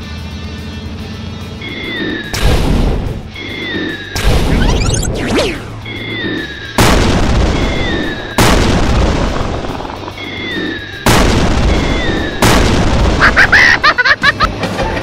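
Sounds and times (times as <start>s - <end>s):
loud explosion boom: 6.8s - 9.9s, 11.1s - 13.6s.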